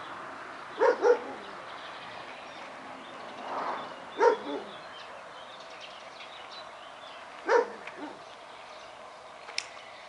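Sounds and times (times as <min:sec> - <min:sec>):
dog barking: 0:00.8 - 0:01.4, 0:04.2 - 0:04.7, 0:07.4 - 0:08.2.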